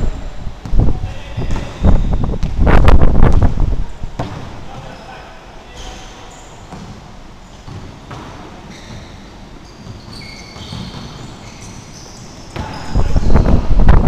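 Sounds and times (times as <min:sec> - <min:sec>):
sneakers squeaking: 0:00.1 - 0:14.0
basketball bouncing on wooden floor: 0:07.6 - 0:09.0, 0:09.8 - 0:11.3.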